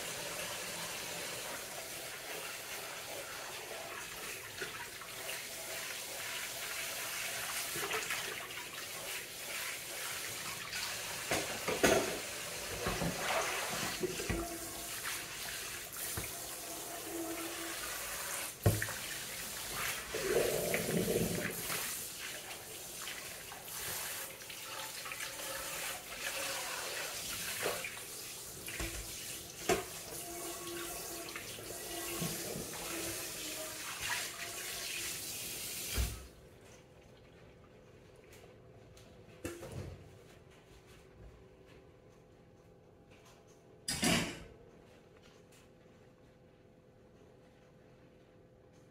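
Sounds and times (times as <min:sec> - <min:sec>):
sponge scrubbing dishes: 0:01.4 - 0:35.2.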